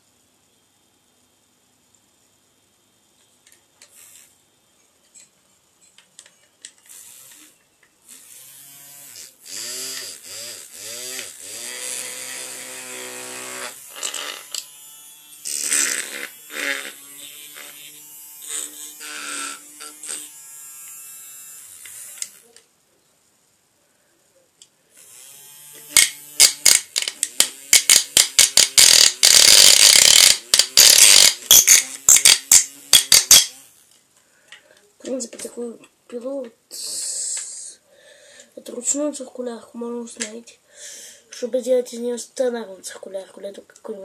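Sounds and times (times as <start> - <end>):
small electric saw motor whine: 6.8 - 22.5, 25.0 - 33.8.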